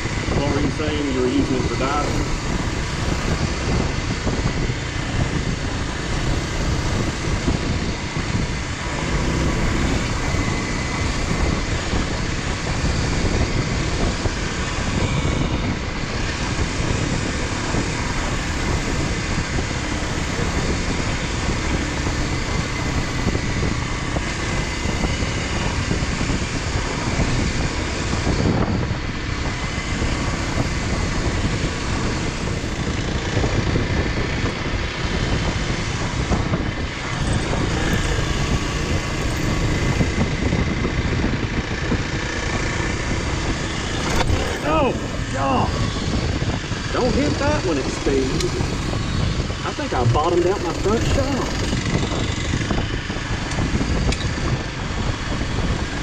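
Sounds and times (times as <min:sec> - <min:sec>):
motorcycle engine running: 0:00.0 - 0:56.0
wind noise: 0:00.0 - 0:56.0.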